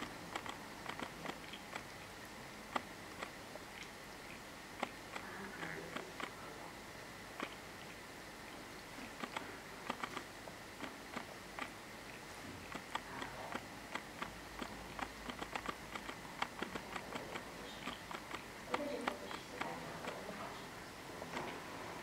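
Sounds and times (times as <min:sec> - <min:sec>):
cat licking paw: 0:07.4 - 0:20.5.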